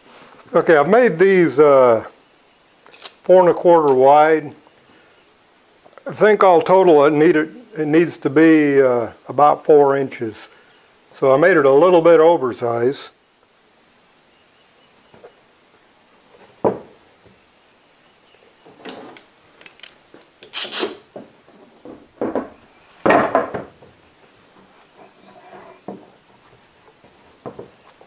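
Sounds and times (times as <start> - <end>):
sharp wooden knocks: 21.2 - 23.9
wood rubbing on wood: 21.8 - 28.0.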